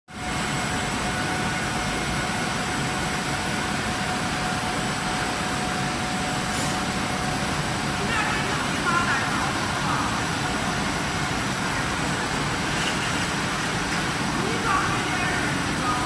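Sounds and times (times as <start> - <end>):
machinery humming: 0.1 - 16.0.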